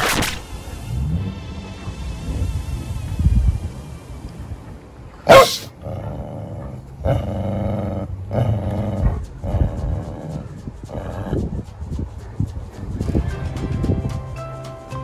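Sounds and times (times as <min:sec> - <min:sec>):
dog barking: 0:05.2 - 0:06.8
dogs growling playfully: 0:05.2 - 0:12.4.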